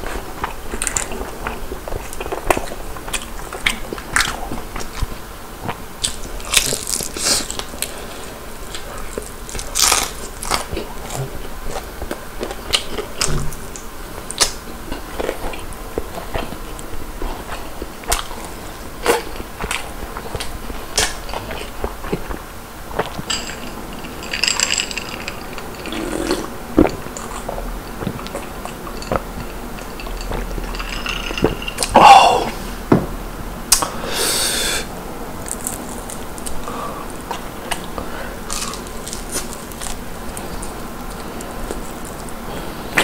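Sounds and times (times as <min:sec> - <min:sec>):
chewing crispy chicken: 0:00.0 - 0:23.7, 0:35.4 - 0:43.0
person drinking beer: 0:31.6 - 0:32.8.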